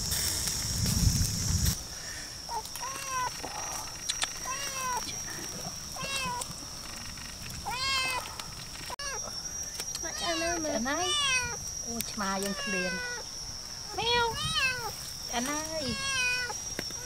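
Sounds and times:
kitten meowing: 10.1 - 11.6, 14.0 - 14.9, 15.8 - 16.6.

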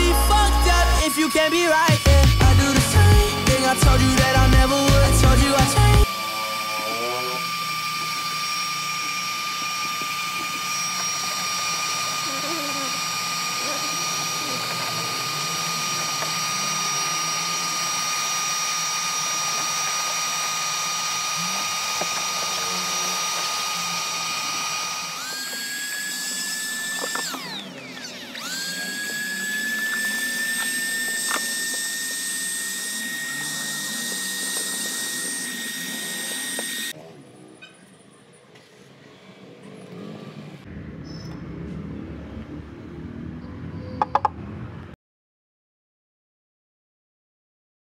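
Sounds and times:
vacuum cleaner motor whining: 0.0 - 37.0.

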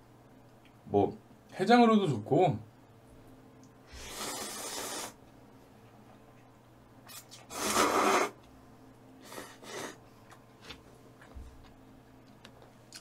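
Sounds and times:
person slurping noodles: 3.9 - 5.2, 7.1 - 8.4, 9.2 - 10.0.

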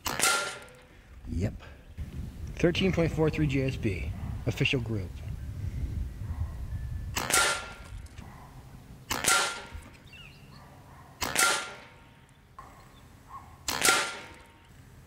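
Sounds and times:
air rifle shots: 0.0 - 0.8, 7.2 - 8.0, 9.1 - 9.9, 11.2 - 12.1, 13.6 - 14.6.

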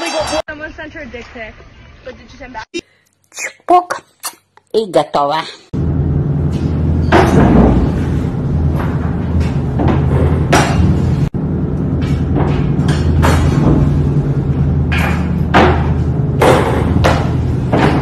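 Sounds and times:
steady low hum: 5.8 - 18.0
sharp knocks and thuds: 7.1 - 11.3, 14.8 - 18.0.

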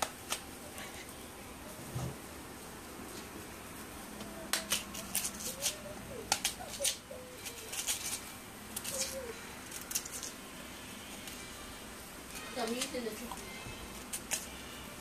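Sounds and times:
knife scraping cassava skin: 4.5 - 10.4, 13.9 - 14.6.

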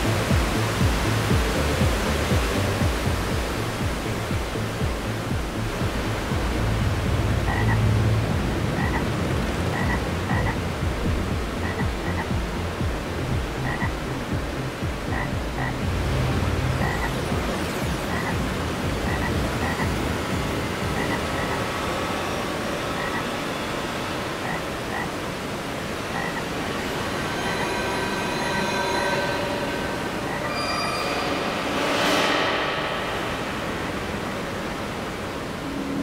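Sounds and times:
low rumble: 0.0 - 22.2, 26.8 - 35.8
dense noisy electronic wash: 0.0 - 36.0
croak-like electronic blips: 7.4 - 7.8, 8.8 - 9.1, 9.7 - 10.6, 11.6 - 12.8, 13.6 - 14.1, 15.0 - 15.8, 16.8 - 21.8, 22.9 - 23.4, 24.4 - 25.2, 26.1 - 31.1
steady high tones: 14.3 - 36.0.

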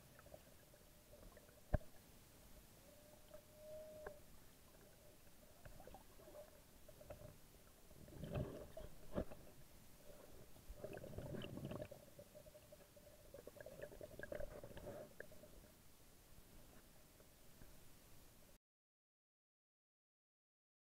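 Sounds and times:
underwater water bubbling: 0.0 - 15.8
water gurgling: 0.0 - 15.8
faint steady hum: 0.0 - 18.6.

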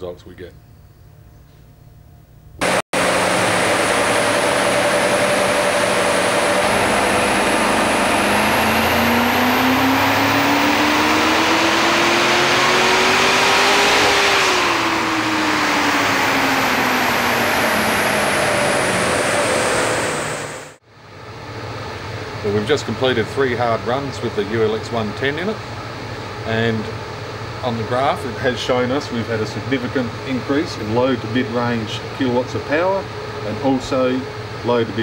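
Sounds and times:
car engine revving under load: 2.6 - 20.8
loud steady rush: 2.6 - 20.8.

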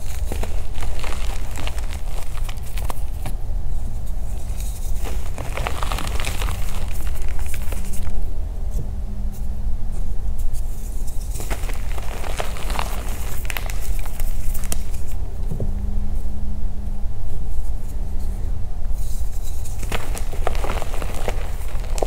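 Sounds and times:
chalk crunching in hands: 0.0 - 3.3, 4.1 - 8.2, 10.6 - 15.2, 19.0 - 22.0
steady low rumble: 0.0 - 22.0.

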